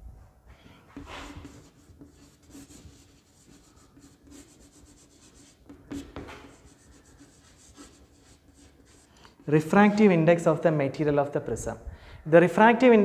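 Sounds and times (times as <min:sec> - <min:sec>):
chalk scratching on chalkboard: 0:00.9 - 0:09.5.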